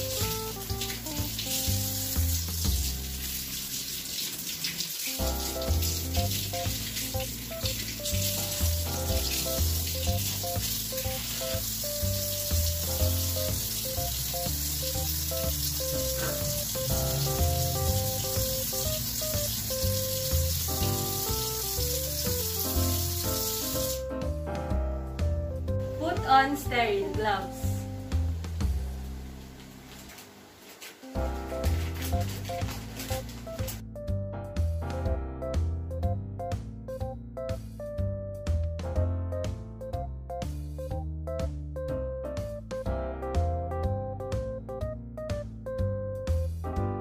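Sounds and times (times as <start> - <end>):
instrumental music: 0.0 - 4.1, 5.1 - 29.1, 31.0 - 47.0
tap water running over hands: 0.0 - 24.1, 29.4 - 33.8.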